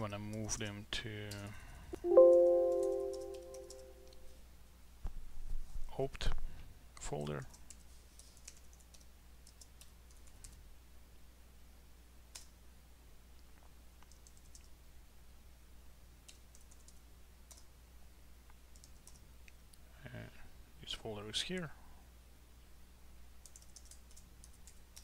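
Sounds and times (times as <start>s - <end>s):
low electrical hum: 0.0s - 25.0s
keyboard typing: 2.0s - 4.2s, 14.0s - 14.7s, 18.7s - 19.2s, 23.4s - 25.0s.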